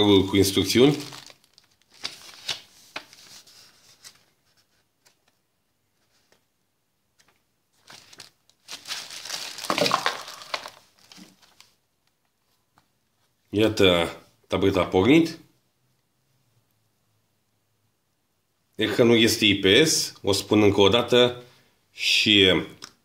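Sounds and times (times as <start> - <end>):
paper rustling and crinkling: 0.7 - 5.4, 7.2 - 11.8.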